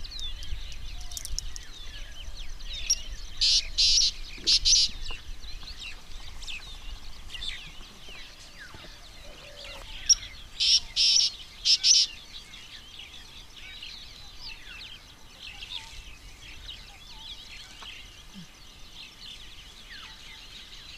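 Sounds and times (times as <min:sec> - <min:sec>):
small birds chirping: 0:00.0 - 0:20.9
loud buzzy bird calls: 0:02.8 - 0:05.0, 0:08.7 - 0:12.8.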